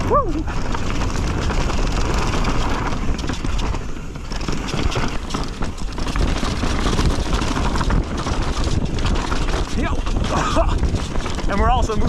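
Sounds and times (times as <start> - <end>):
bike rattling and knocking: 0.0 - 12.0
tyres rumbling on dirt trail: 0.0 - 12.0.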